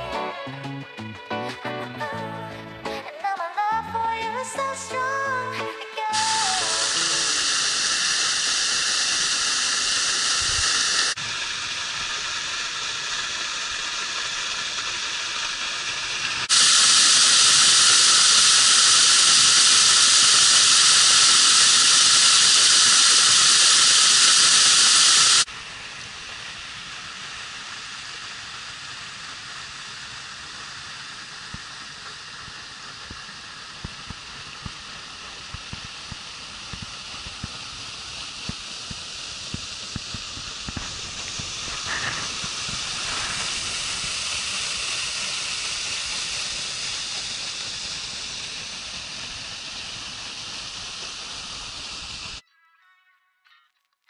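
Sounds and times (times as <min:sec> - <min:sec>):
waterfall rushing: 0:06.1 - 0:25.5, 0:34.8 - 0:52.3.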